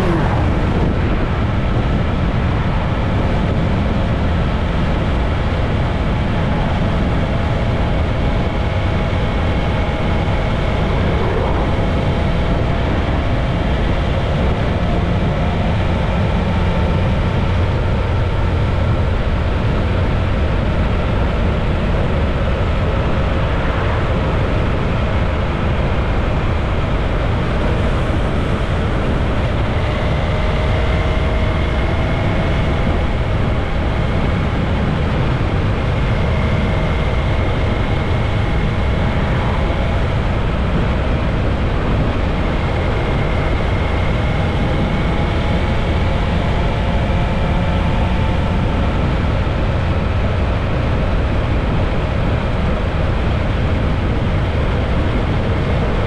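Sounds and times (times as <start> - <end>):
motorcycle engine: 0.0 - 3.6
road noise: 0.0 - 56.0
wind rush over microphone: 0.0 - 56.0.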